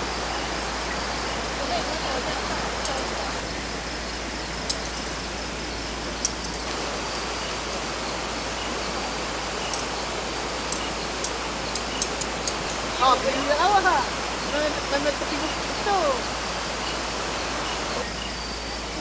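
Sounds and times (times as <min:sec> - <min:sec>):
river rushing: 0:00.0 - 0:19.0
faint sharp ticks: 0:09.7 - 0:10.0, 0:10.7 - 0:12.8.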